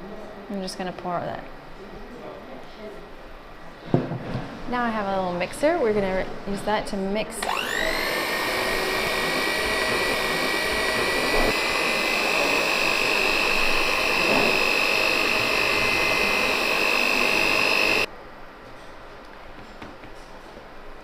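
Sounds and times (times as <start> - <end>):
electric hand mixer whining: 7.4 - 18.1.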